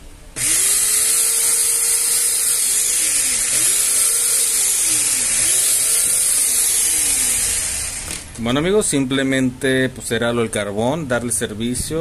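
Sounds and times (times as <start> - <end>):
blender motor whining: 0.4 - 8.4.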